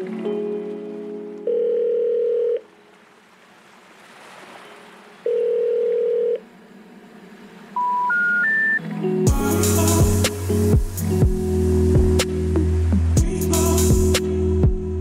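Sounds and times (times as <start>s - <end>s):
telephone ringing tones: 1.4s - 2.7s, 5.3s - 6.4s
short rising beeps: 7.8s - 8.8s.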